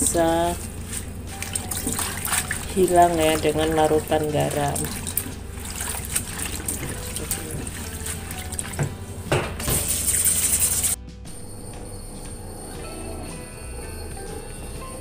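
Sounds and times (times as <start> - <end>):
rush of water: 0.0 - 11.0
water sloshing in a plastic bowl: 0.0 - 11.0
faint background music: 0.0 - 15.0.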